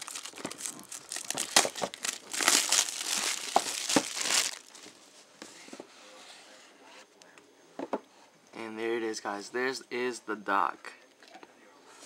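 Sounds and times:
plastic shrink wrap tearing: 0.0s - 4.9s.

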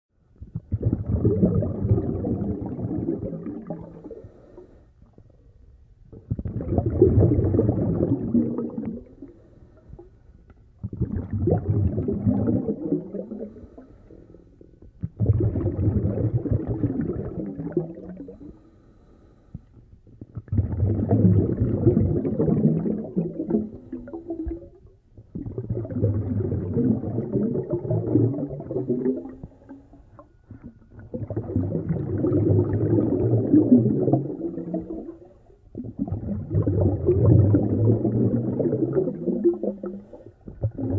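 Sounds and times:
muffled breathing through snorkel: 3.8s - 5.4s, 9.0s - 10.4s, 13.2s - 14.8s, 18.2s - 20.0s, 39.9s - 40.7s.

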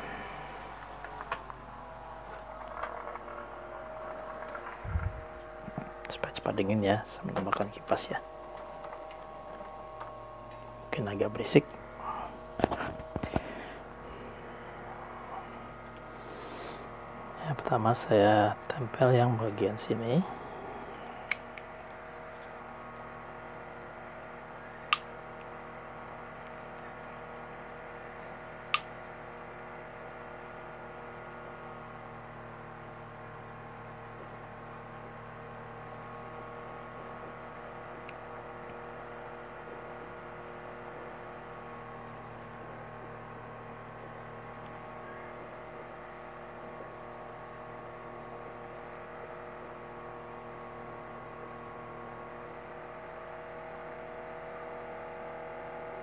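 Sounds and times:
electric fan humming: 0.0s - 56.0s.

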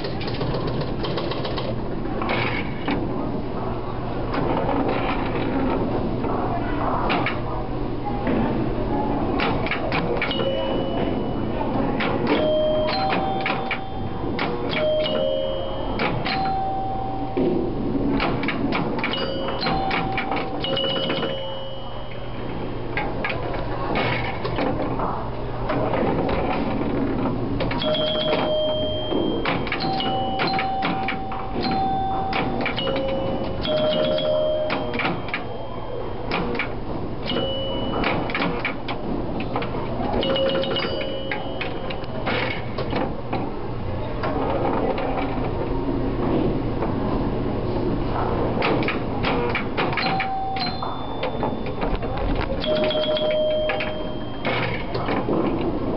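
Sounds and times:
pinball relay and bumper clicks: 0.0s - 3.0s, 9.3s - 25.0s, 25.7s - 43.5s, 48.5s - 55.9s
pinball bells ringing: 10.0s - 24.4s, 27.7s - 42.8s, 49.6s - 55.9s.

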